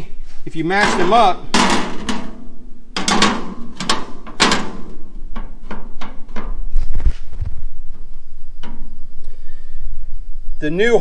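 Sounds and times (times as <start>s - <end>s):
steel plates clanking and scraping: 0.6s - 7.0s, 8.0s - 9.1s.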